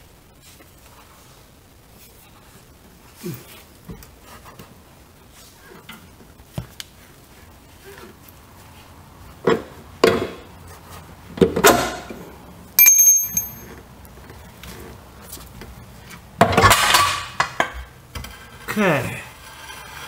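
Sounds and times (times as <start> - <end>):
ringing ping of struck metal: 12.8 - 13.6
metal tools clinking and clattering: 12.8 - 13.8
metal rattling scrape: 18.2 - 20.0.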